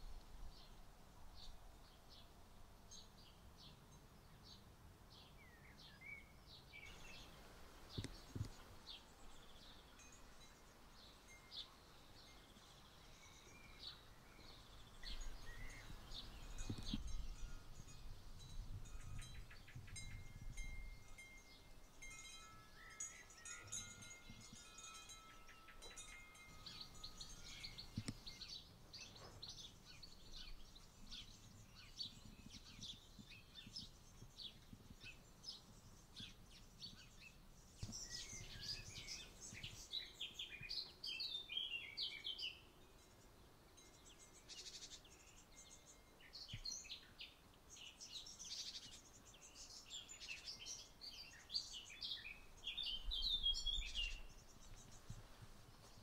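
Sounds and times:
small birds singing and chirping: 0.0 - 56.0
clear chime-like tones: 16.5 - 28.5.

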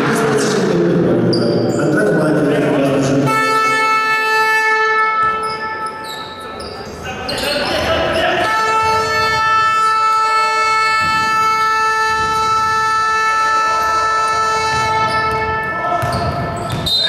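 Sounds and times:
arena horn long tone: 3.2 - 5.8, 8.4 - 15.8.

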